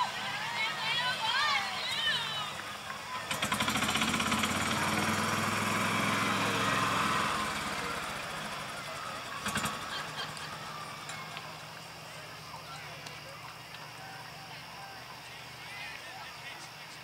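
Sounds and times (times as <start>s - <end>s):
motor engine running: 0.6s - 14.0s.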